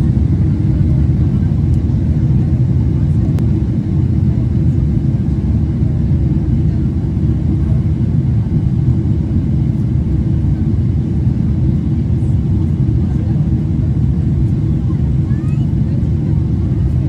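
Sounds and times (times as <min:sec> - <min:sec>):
airliner cabin rumble: 0:00.0 - 0:17.0.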